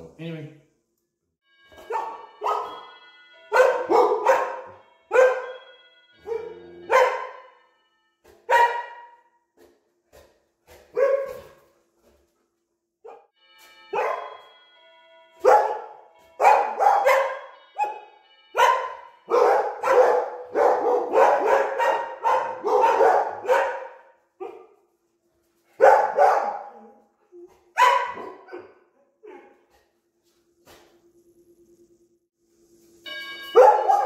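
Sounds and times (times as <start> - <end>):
doorbell chime: 1.4 - 8.2, 13.4 - 20.6, 33.0 - 34.0
dogs barking: 1.9 - 2.8, 3.5 - 5.6, 6.2 - 7.5, 8.5 - 9.2, 10.9 - 11.6, 15.4 - 18.0, 18.6 - 24.8, 25.8 - 26.9, 27.6 - 29.6, 33.6 - 34.0.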